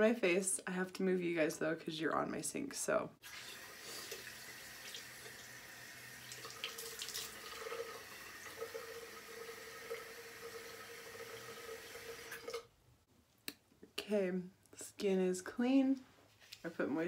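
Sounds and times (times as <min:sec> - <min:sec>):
sink tap running: 0:03.2 - 0:12.7
water splashing: 0:06.3 - 0:07.9.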